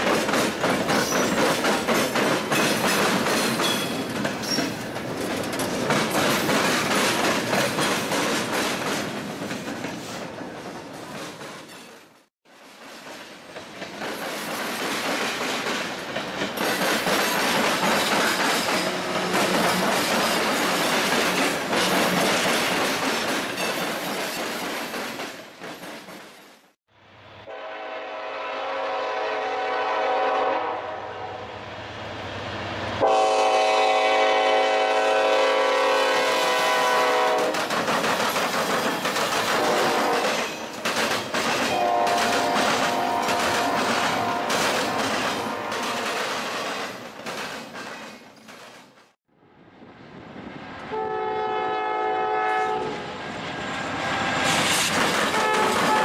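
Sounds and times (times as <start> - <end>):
freight cars wheels on rails: 0.0 - 26.4, 37.4 - 49.1, 52.9 - 56.0
train horn blasts: 27.4 - 31.6, 33.0 - 37.5, 39.6 - 40.4, 41.7 - 46.2, 50.9 - 53.1, 55.3 - 56.0.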